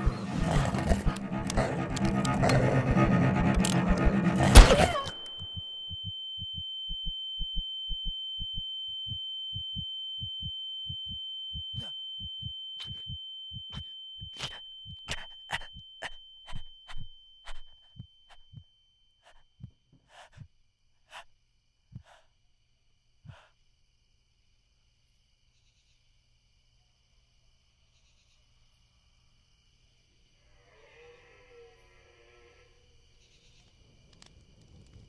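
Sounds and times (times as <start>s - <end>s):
heartbeat thumps: 0.6s - 18.6s
sharp clicks: 0.8s - 8.6s
high ringing tone: 4.8s - 18.6s.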